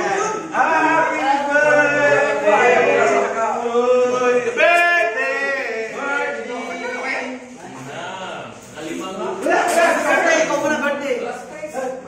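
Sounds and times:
group singing with held notes: 0:00.0 - 0:06.5.

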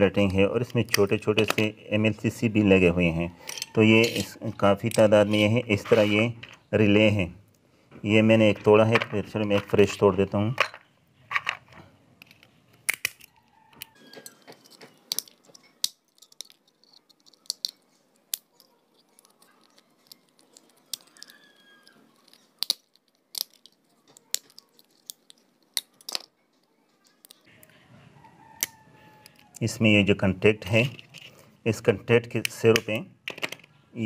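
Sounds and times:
plastic snapping: 0:12.2 - 0:26.3.

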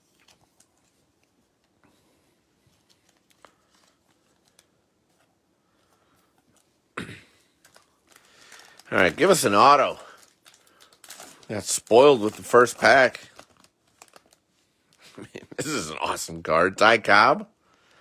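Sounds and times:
card rustle: 0:00.0 - 0:01.8, 0:02.6 - 0:06.8, 0:07.5 - 0:15.1.

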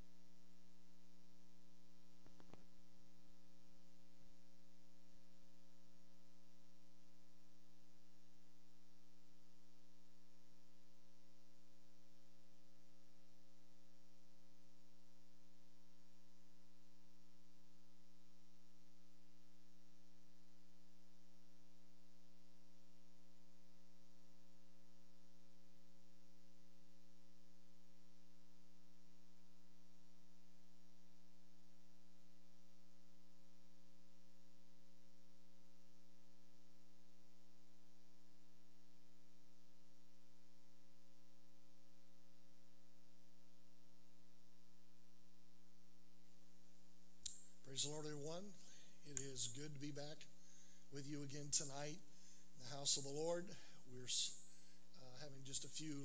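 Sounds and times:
faint click: 0:02.2 - 0:02.7, 0:47.2 - 0:47.6.

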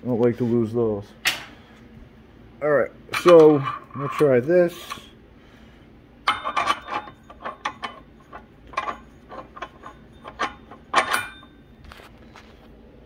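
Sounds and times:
metallic clinks and knocks: 0:06.3 - 0:11.8.

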